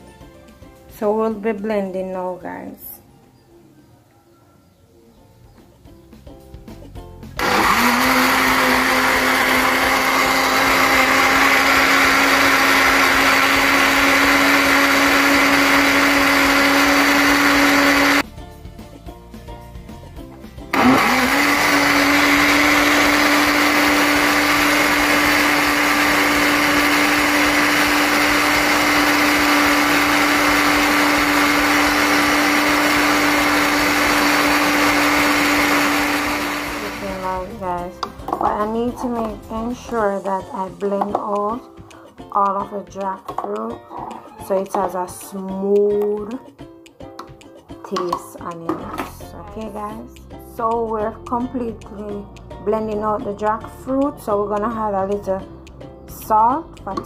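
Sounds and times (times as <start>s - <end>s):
blender motor running: 7.4s - 18.2s, 20.7s - 37.6s.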